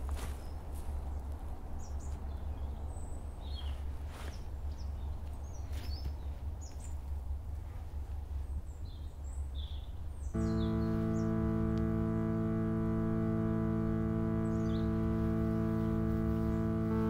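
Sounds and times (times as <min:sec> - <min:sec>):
soft rustles on dry ground: 0:00.0 - 0:09.3
small birds chirping: 0:08.4 - 0:17.0
steady low rumble: 0:10.4 - 0:17.0.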